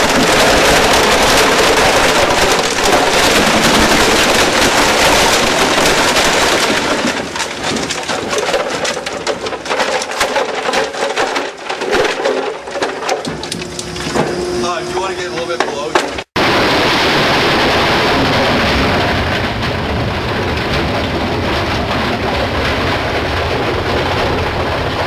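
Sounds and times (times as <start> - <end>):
shredder chopping plastic: 0.0 - 17.0.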